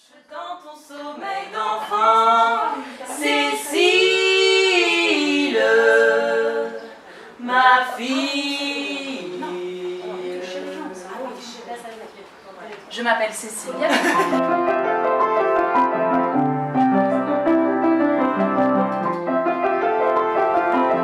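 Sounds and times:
women singing a cappella: 0:00.0 - 0:11.6.

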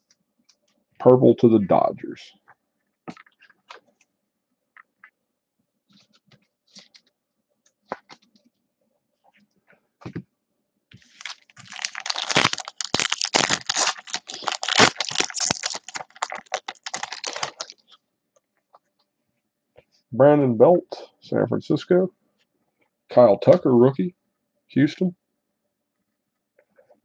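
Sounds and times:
foil wrapper crinkling and tearing: 0:11.0 - 0:18.0.

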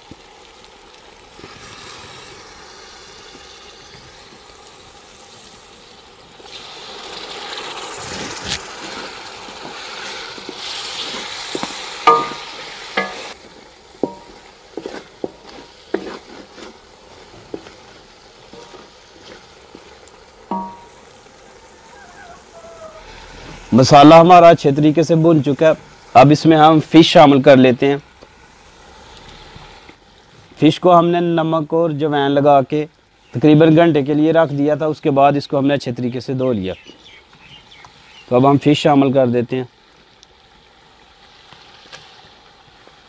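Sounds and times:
masala sizzling in a pot: 0:00.0 - 0:43.0
spoon knocking against pot: 0:12.1 - 0:13.3, 0:20.5 - 0:20.9
wooden spoon scraping a pot: 0:13.0 - 0:20.9.

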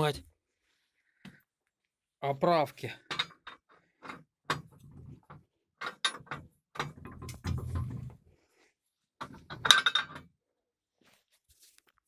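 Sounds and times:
sharp metal clicks and knocks: 0:03.0 - 0:08.1.

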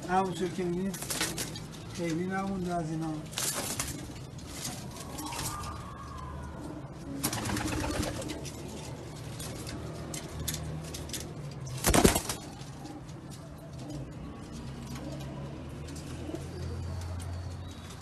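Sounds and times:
pigeons cooing: 0:00.0 - 0:18.0
wings flapping: 0:07.1 - 0:08.6, 0:11.6 - 0:12.8.

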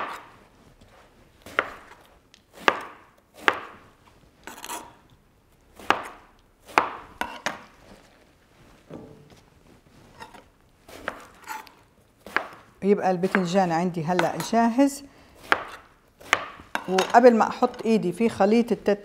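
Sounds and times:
knife chopping on cutting board: 0:00.0 - 0:00.3, 0:01.5 - 0:02.0, 0:02.6 - 0:03.8, 0:05.8 - 0:07.6, 0:10.2 - 0:13.5, 0:14.2 - 0:14.5, 0:15.4 - 0:17.1
knife rasp: 0:10.2 - 0:12.4.

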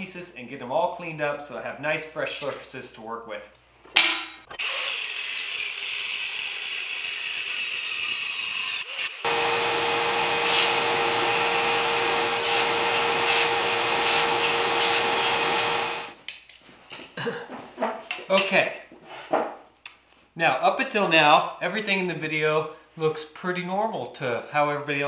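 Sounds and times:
belt grinder grinding steel: 0:04.0 - 0:16.2
motor humming: 0:09.2 - 0:16.2.

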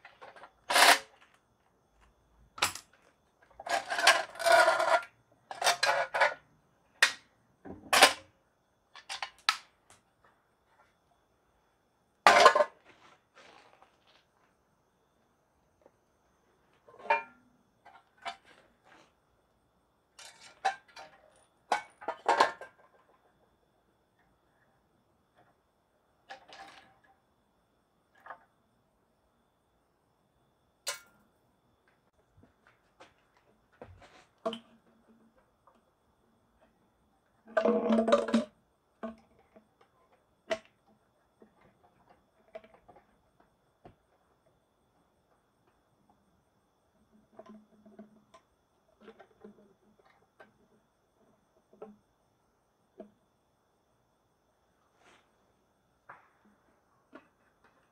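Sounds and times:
metal parts clinking on concrete: 0:00.2 - 0:01.4, 0:02.6 - 0:06.4.

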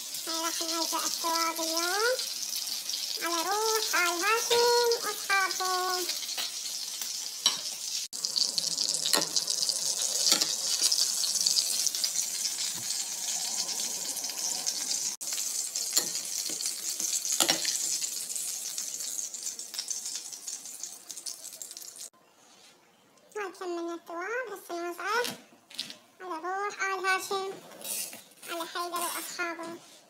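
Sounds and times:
running water hissing: 0:00.0 - 0:22.1.

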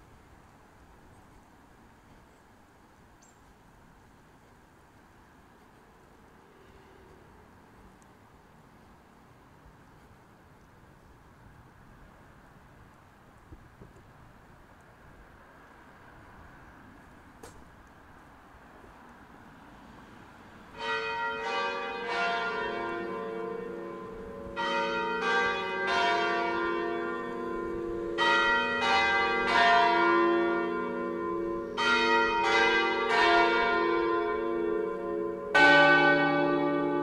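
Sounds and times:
church bells ringing: 0:20.7 - 0:37.0.

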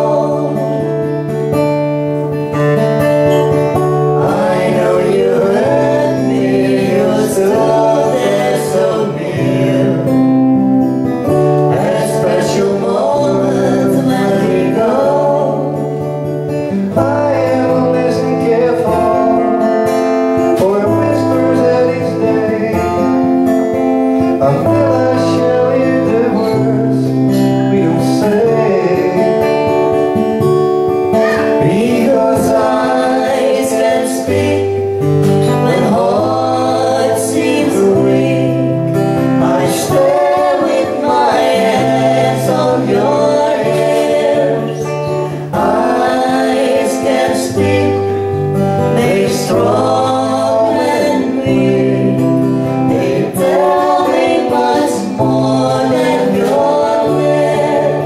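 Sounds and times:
acoustic guitar playing: 0:00.0 - 0:58.0
woman singing: 0:11.7 - 0:15.7, 0:31.1 - 0:38.7.

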